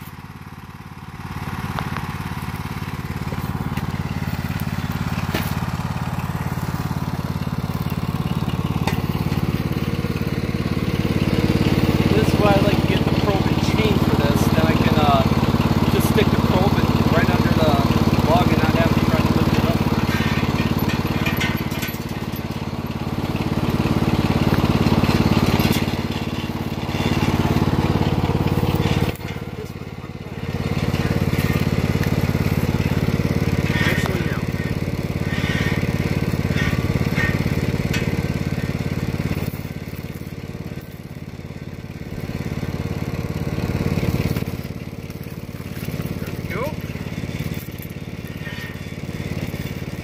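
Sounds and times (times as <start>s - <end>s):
small engine idling: 0.0s - 50.0s
metal chain rattling: 19.6s - 22.6s, 25.0s - 30.0s, 44.3s - 49.9s.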